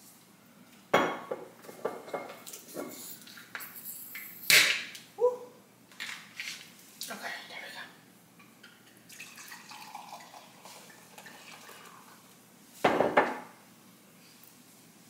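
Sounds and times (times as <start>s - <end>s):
glass clunking on stone counter: 0.9s - 2.9s, 12.8s - 13.5s
liquid pouring into a glass: 9.1s - 12.3s.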